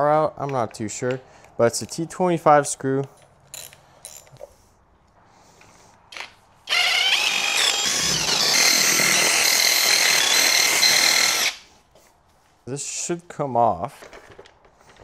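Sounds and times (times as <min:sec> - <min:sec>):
impact wrench running: 0:06.7 - 0:11.7.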